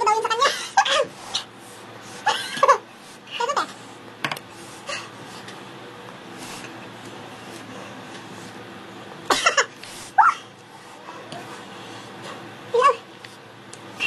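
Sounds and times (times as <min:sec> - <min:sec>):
woman laughing: 0:00.3 - 0:01.1.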